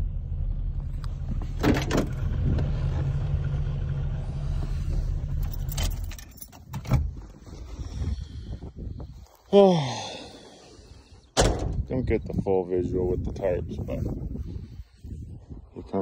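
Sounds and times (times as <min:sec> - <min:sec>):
car engine idling: 0:00.0 - 0:07.2
key and door clicks: 0:05.4 - 0:07.0.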